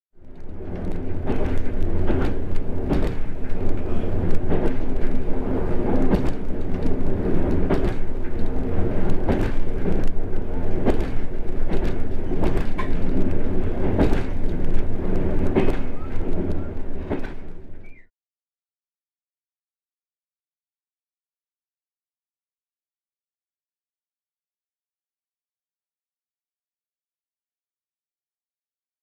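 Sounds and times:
sharp clicks and knocks: 0.2s - 18.0s
diesel locomotive engine under load: 0.2s - 18.1s.

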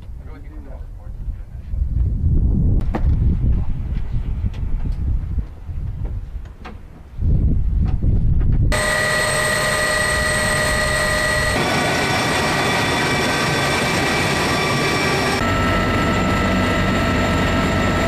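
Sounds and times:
low rotor rumble: 0.0s - 18.0s
helicopter turbine whine: 8.7s - 18.0s.

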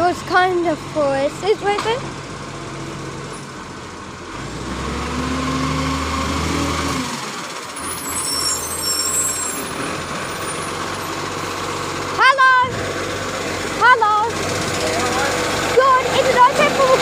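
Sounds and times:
garbage truck diesel engine: 0.0s - 17.0s
high-pitched brake squeal: 7.8s - 11.2s.

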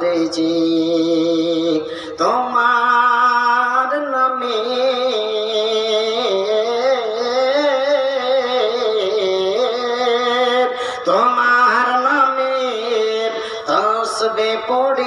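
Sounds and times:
man singing into a microphone: 0.0s - 15.0s.

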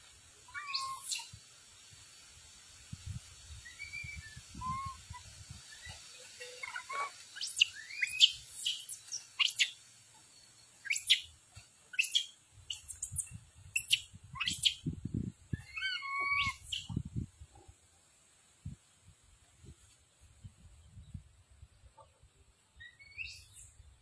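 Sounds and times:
high chirping calls: 0.5s - 1.4s, 5.7s - 9.8s, 10.8s - 11.3s, 11.9s - 14.9s, 15.6s - 17.0s, 22.8s - 23.8s.

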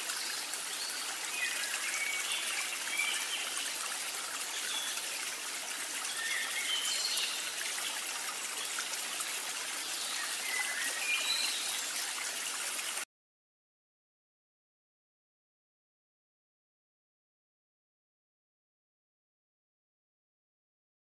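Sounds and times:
water flowing and trickling: 0.0s - 13.1s.

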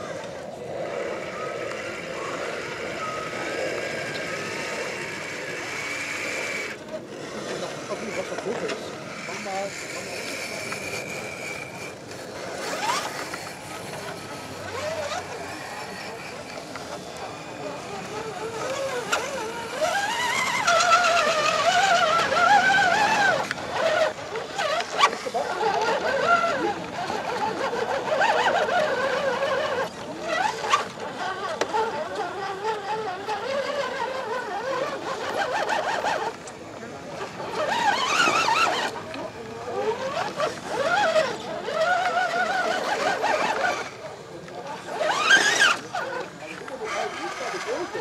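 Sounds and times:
electric motor and gear whine: 0.0s - 48.0s.

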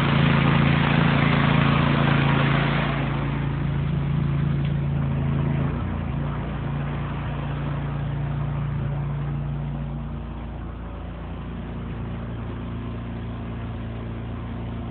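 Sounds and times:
vehicle engine idling: 0.0s - 14.9s.

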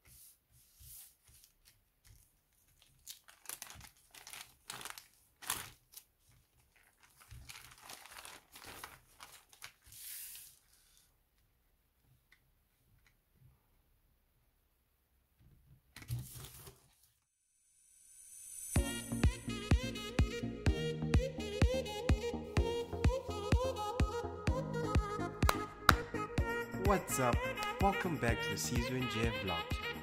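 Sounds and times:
plastic bag tearing and crinkling: 2.8s - 10.7s.

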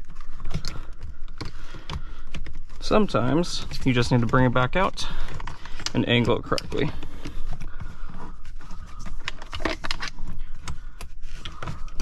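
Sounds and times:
plastic trim clicks and scrapes: 8.8s - 12.0s.

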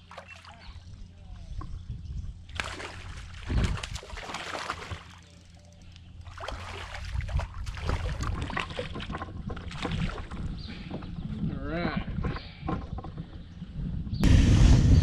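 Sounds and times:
water sloshing against hull: 0.0s - 13.9s
fish splashing at surface: 2.6s - 5.2s.

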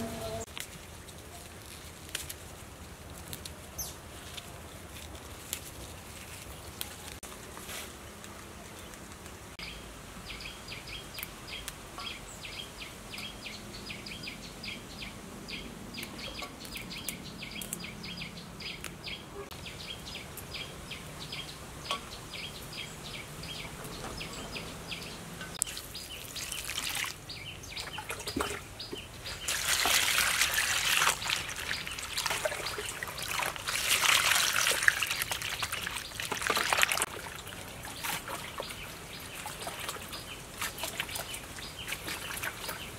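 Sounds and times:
hands splashing in water: 29.4s - 38.7s.

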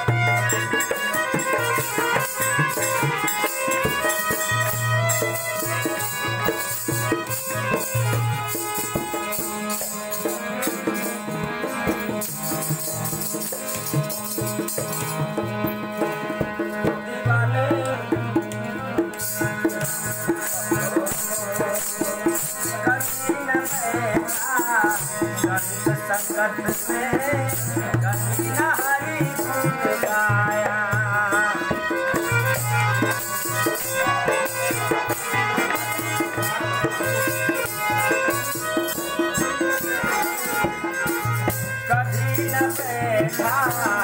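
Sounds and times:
dholak drum strokes: 0.0s - 44.0s
harmonium chords: 0.0s - 44.0s
jingling percussion: 0.0s - 44.0s
person singing: 15.7s - 44.0s.

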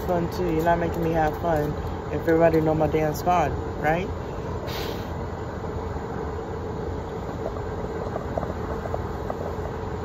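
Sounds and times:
constant hum: 0.0s - 10.0s
low background rumble: 0.0s - 10.0s.

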